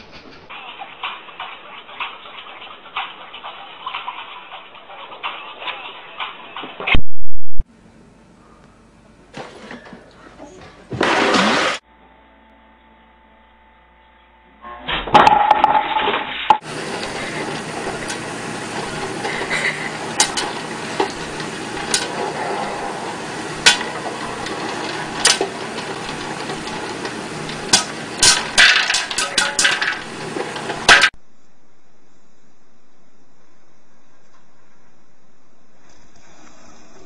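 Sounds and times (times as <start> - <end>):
popcorn popper running: 10.9 - 11.8, 15.1 - 31.2
popcorn kernels popping: 16.6 - 22.4, 23.0 - 31.2.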